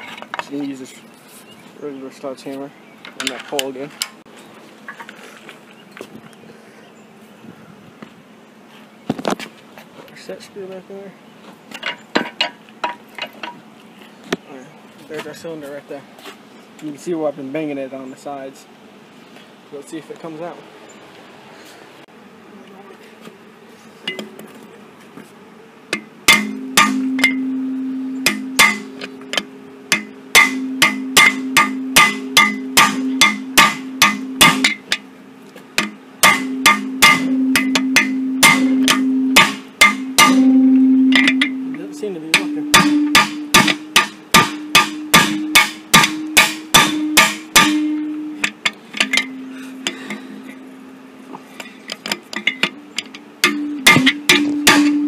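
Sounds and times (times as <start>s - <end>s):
hammer striking metal pole: 25.9s - 35.1s, 35.8s - 50.6s, 51.6s - 55.0s
metallic ringing: 26.0s - 55.0s.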